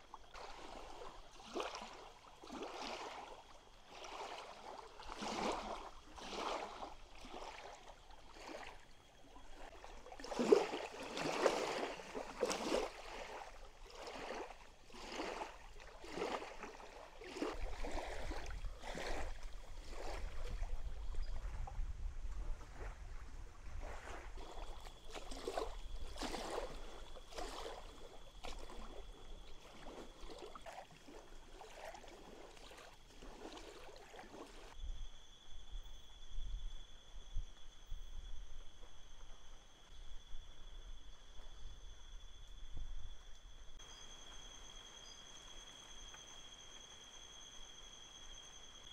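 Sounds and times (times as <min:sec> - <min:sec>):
small waves lapping on shore: 0:00.0 - 0:34.8.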